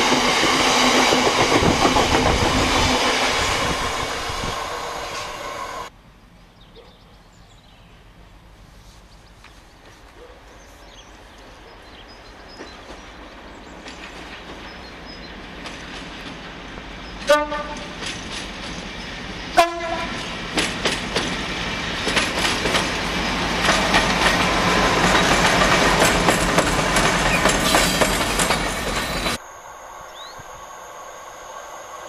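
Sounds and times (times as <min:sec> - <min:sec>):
diesel locomotive engine: 0:00.0 - 0:06.3, 0:08.1 - 0:32.0
wheels clattering over rail joints: 0:12.5 - 0:29.4
train horn blasts: 0:17.3 - 0:18.0, 0:19.6 - 0:20.2.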